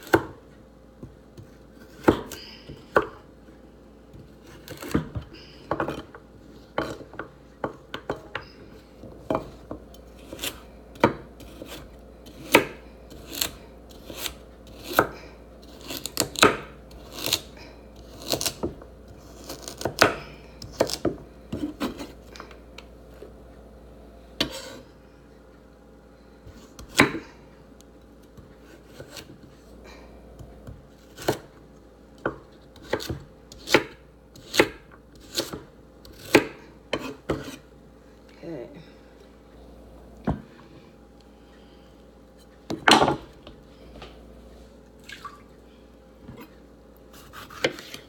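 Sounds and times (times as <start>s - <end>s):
knife chopping on wooden board: 0.0s - 0.4s, 1.0s - 3.2s, 4.1s - 8.5s, 9.1s - 17.5s, 18.1s - 22.5s, 26.5s - 27.3s, 28.4s - 29.4s, 30.4s - 31.5s, 32.2s - 37.6s, 47.2s - 48.0s.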